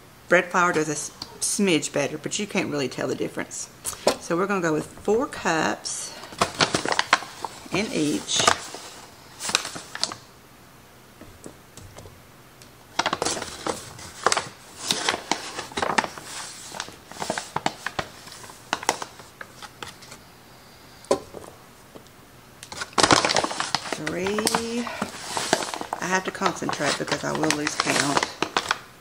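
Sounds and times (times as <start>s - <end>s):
paper bag crinkling: 6.1s - 10.3s, 12.9s - 20.2s, 22.6s - 28.9s.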